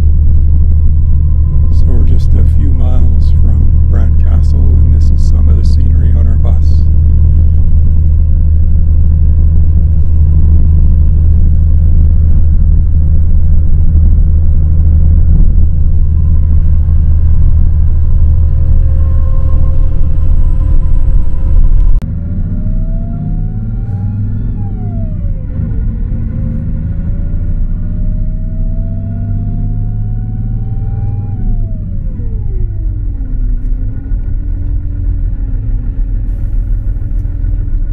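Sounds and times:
faint whine: 0:00.0 - 0:22.0
bus engine and tyres rumbling: 0:00.0 - 0:37.9.

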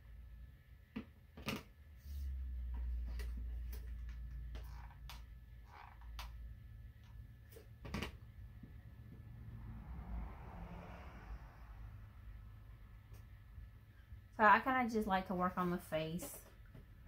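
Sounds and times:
low rumble: 0:08.3 - 0:14.4.

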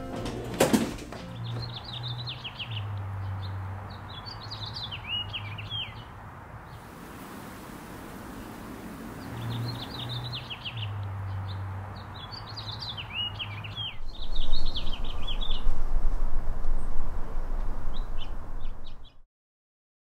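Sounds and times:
small birds chirping: 0:01.3 - 0:15.7.

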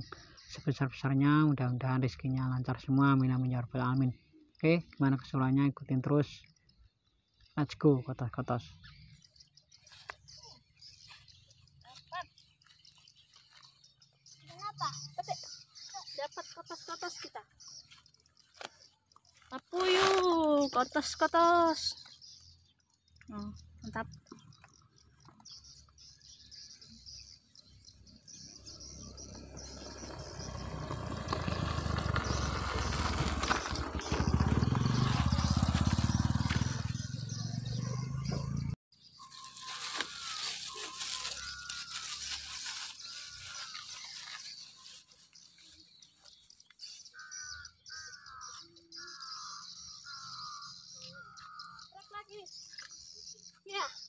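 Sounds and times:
bird calling: 0:23.2 - 0:54.0
motorcycle engine approaching: 0:27.7 - 0:51.9.

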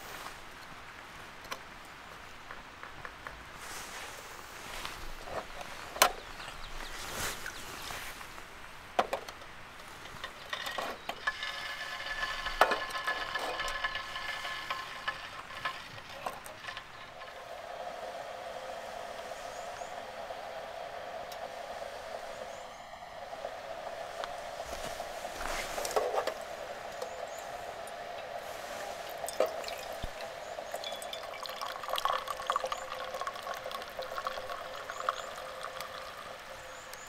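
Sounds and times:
food sizzling: 0:11.3 - 0:37.0.

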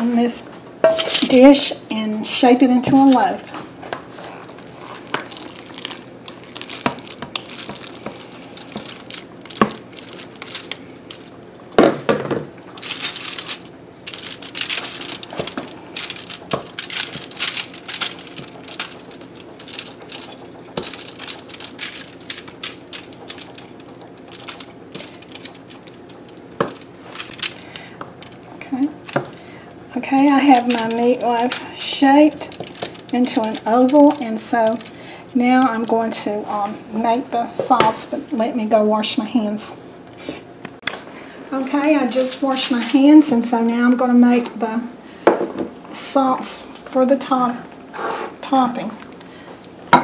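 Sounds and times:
aluminium foil crinkling: 0:04.1 - 0:11.8, 0:12.6 - 0:36.3, 0:41.7 - 0:43.4
soft squishing of meat: 0:04.1 - 0:11.8.

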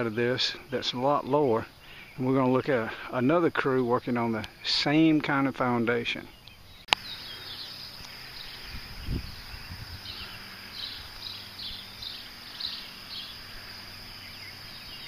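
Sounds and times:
bird chirping: 0:00.0 - 0:15.0
high insect drone: 0:06.9 - 0:15.0.

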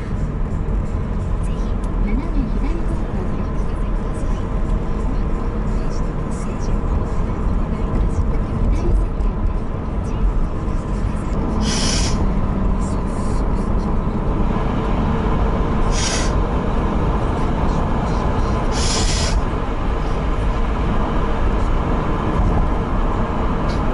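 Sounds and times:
car road and engine noise: 0:00.0 - 0:23.9
brief hissing swells: 0:15.9 - 0:16.4.

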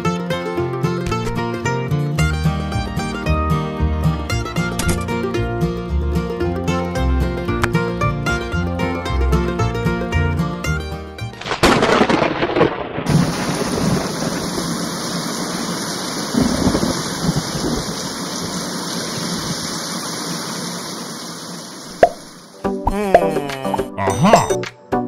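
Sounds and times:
low rolls of thunder: 0:11.4 - 0:19.6
thunderclap: 0:11.4 - 0:19.7
heavy rain: 0:11.4 - 0:22.6.

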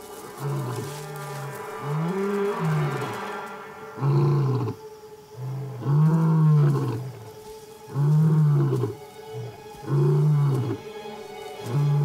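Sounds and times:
lion roaring: 0:03.9 - 0:04.8, 0:05.4 - 0:07.2.

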